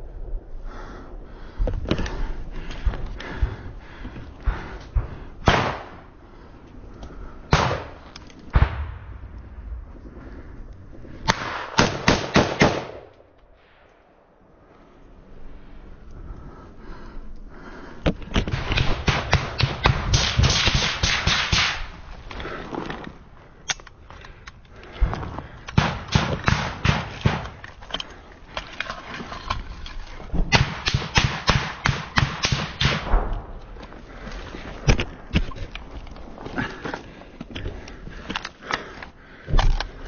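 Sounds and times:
rapid gunfire: 0:11.3 - 0:13.0, 0:18.5 - 0:21.9, 0:25.8 - 0:27.6, 0:30.5 - 0:33.3.

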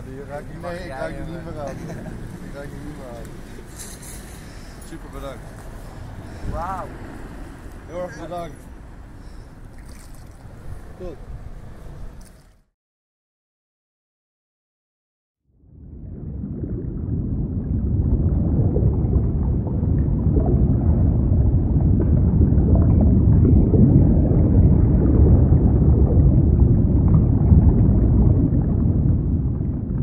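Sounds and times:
deep rumbling: 0:15.5 - 0:30.0.

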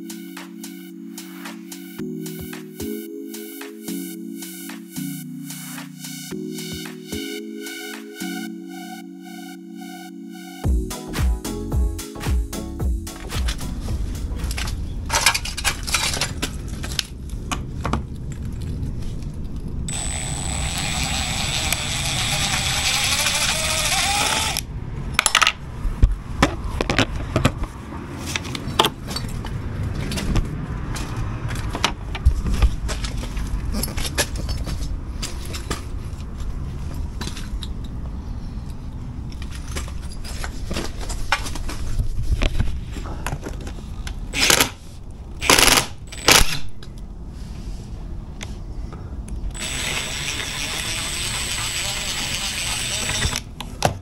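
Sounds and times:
drill-driver whirring: 0:19.9 - 0:24.6, 0:49.6 - 0:53.5.

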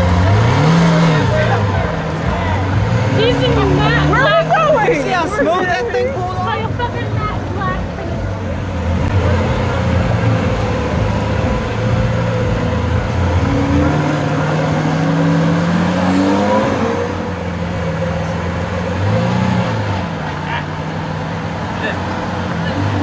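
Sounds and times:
sports car engine revving: 0:00.0 - 0:23.0.

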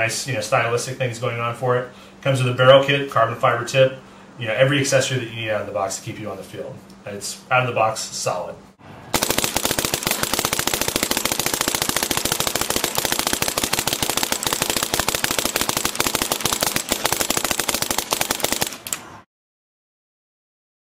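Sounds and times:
paintball marker rapid firing: 0:09.1 - 0:19.2.

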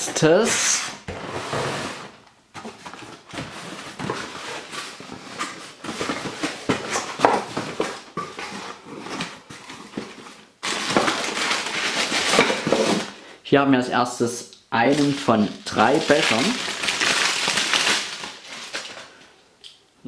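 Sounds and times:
plastic bag crinkling: 0:02.8 - 0:13.3, 0:14.8 - 0:19.3.

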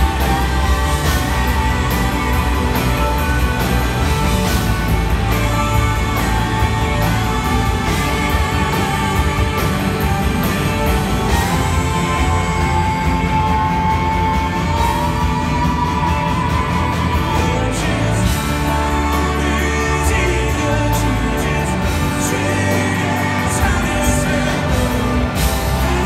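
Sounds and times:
slow rock band song: 0:00.0 - 0:26.0.

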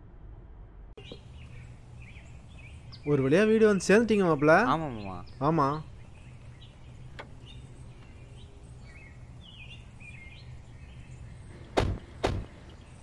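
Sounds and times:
birds chirping: 0:01.0 - 0:13.0
car doors shutting: 0:07.1 - 0:08.2.

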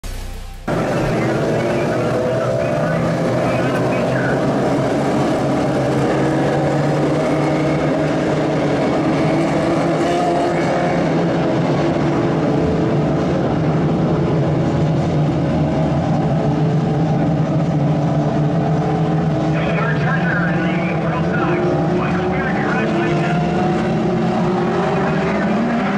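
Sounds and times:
racing car engines: 0:00.0 - 0:25.9.

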